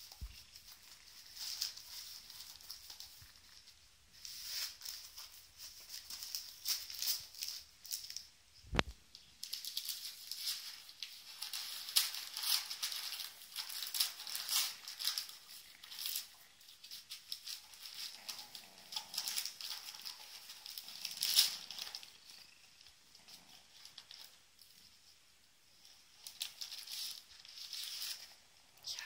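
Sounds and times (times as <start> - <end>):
paper crinkling and rustling: 0.0 - 28.6
dog chewing paper: 9.5 - 24.8, 25.9 - 28.4.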